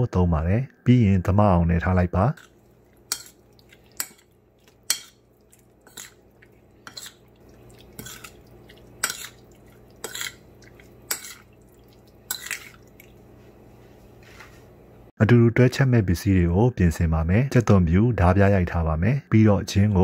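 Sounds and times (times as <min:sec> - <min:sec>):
spoon clinking against bowl: 0:02.4 - 0:05.2, 0:07.8 - 0:11.5, 0:12.3 - 0:12.8
wet squishing of meat: 0:02.4 - 0:13.5.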